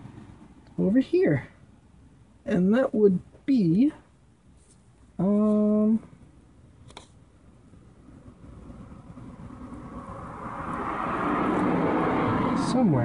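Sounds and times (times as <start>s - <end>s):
rushing noise: 8.0s - 13.0s.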